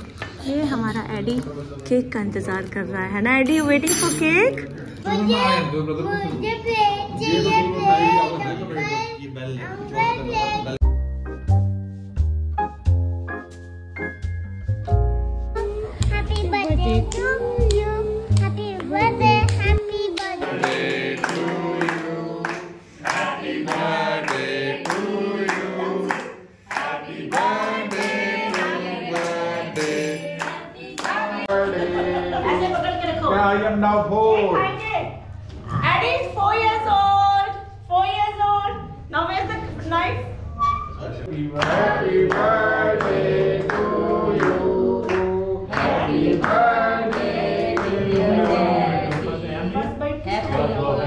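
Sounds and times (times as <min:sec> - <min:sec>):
group of voices singing: 0:16.8 - 0:32.9, 0:41.3 - 0:51.0.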